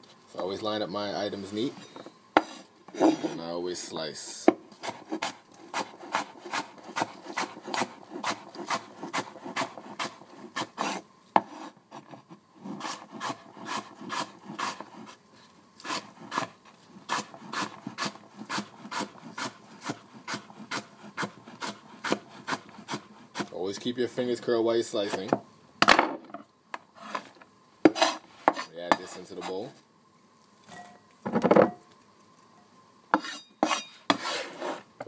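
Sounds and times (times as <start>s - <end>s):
knife chopping on wooden board: 4.5s - 11.6s, 17.1s - 23.5s.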